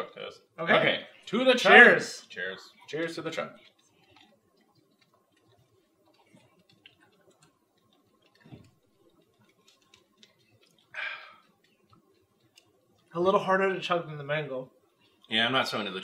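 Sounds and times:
faint swallowing: 2.6 - 13.1
small clicks of plastic cups: 2.8 - 13.2
breathy exhale: 11.0 - 11.4.

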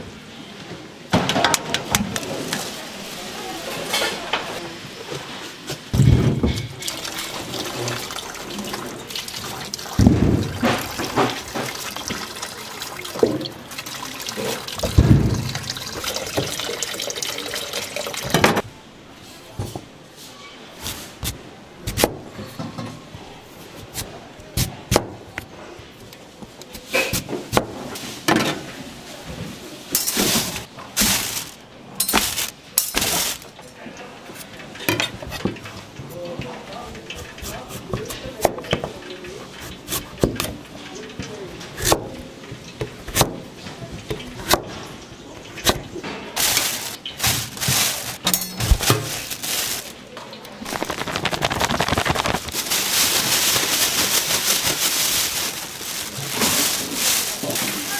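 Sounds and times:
kitchen clicks and knocks: 5.9 - 8.0, 34.4 - 49.4
water running and splashing: 6.7 - 18.5, 50.6 - 57.9.

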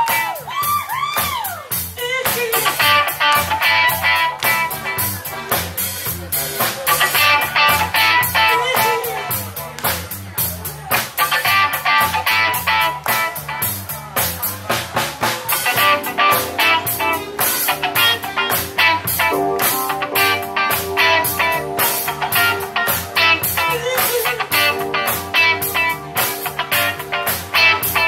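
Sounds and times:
bass line: 0.0 - 28.0
drum kit beat: 0.0 - 28.0
keytar lead: 15.5 - 28.0.

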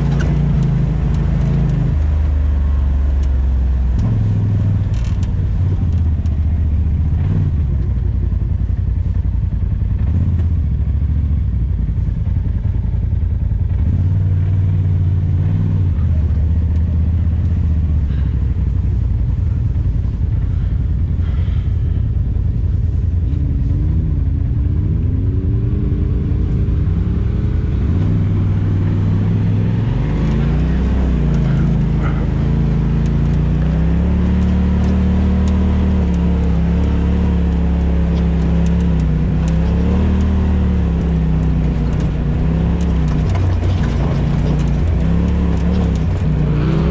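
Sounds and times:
off-road vehicle engine running: 0.0 - 46.9.

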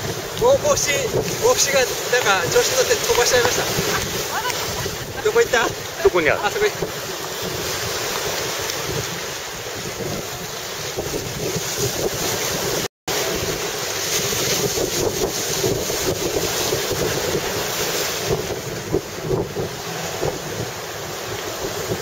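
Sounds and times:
surf breaking on shore: 0.0 - 22.0
wind noise on microphone: 0.0 - 22.0.

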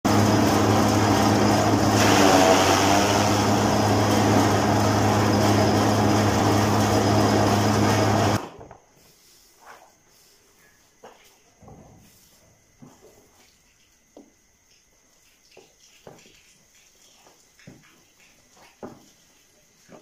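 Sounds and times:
chaff cutter motor humming: 0.1 - 8.5
grass being chopped: 2.0 - 4.9.

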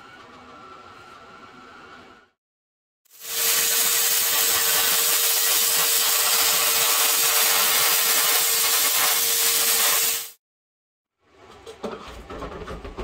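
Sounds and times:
plasma cutter hissing: 3.1 - 10.4.

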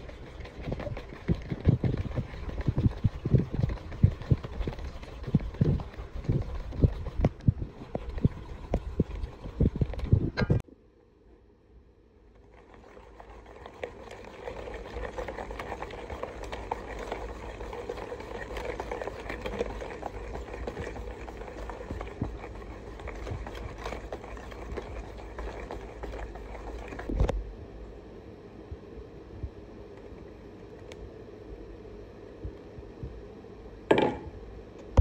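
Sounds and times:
whisk rattling in metal bowl: 0.0 - 10.2, 12.4 - 27.1
knock on metal bowl: 33.9 - 34.3.

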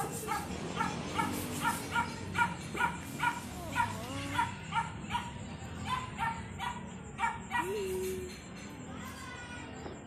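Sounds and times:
small dog yapping: 0.2 - 7.9.

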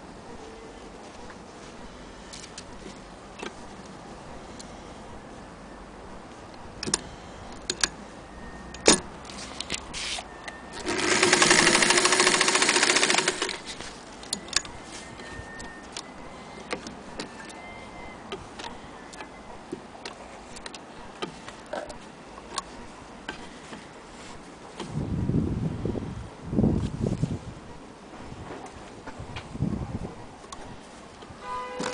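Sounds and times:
electric sewing machine running: 10.8 - 13.6.

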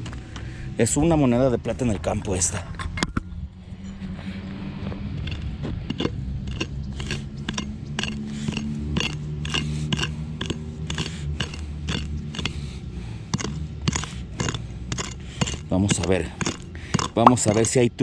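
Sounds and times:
digging tool scraping gritty soil: 5.2 - 18.0.

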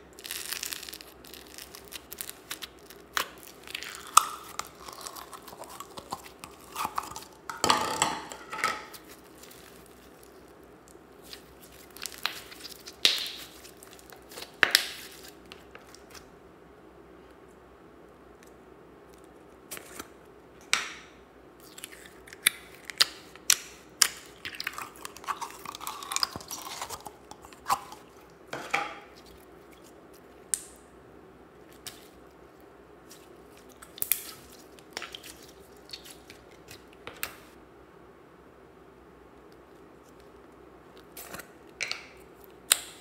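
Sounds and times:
slime crackling and squishing: 0.0 - 7.5, 8.9 - 16.2, 21.6 - 28.4, 31.6 - 37.6.

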